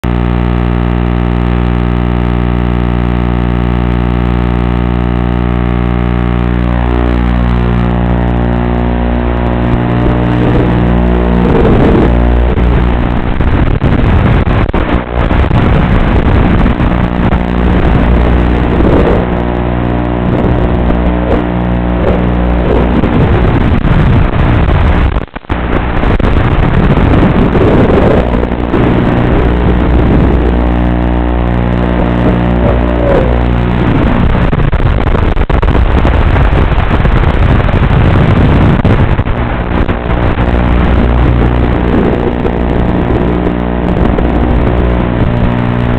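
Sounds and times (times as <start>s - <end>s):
drone motors whining: 0.1s - 25.0s, 26.8s - 34.6s.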